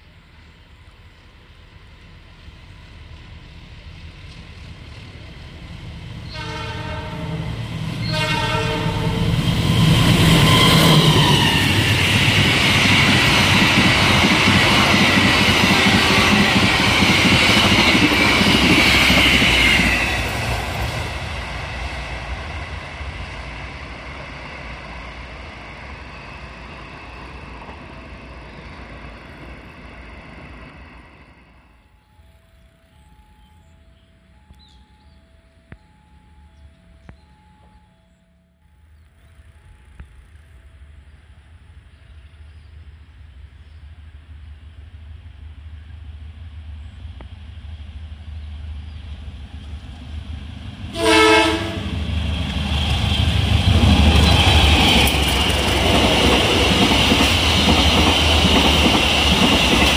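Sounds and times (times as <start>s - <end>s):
train horn blasts: 6.2s - 9.3s, 50.9s - 52.0s
train wheels clattering on rails: 10.0s - 22.6s, 51.5s - 59.9s.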